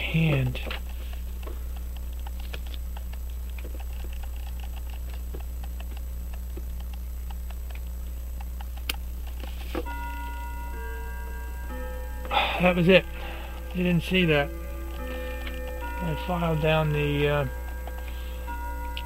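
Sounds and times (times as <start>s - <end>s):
steady low hum: 0.0s - 19.0s
bell-like chime: 9.9s - 19.0s.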